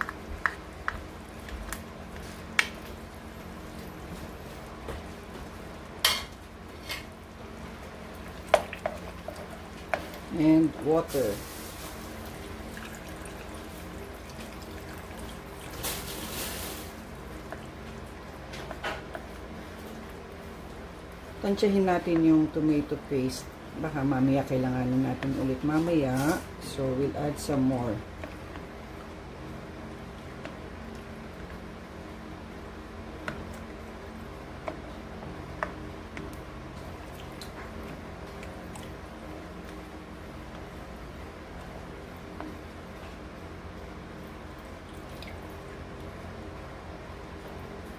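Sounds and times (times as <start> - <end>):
steady low hum: 0.0 - 47.9
spoon stirring in sauce: 8.2 - 11.4.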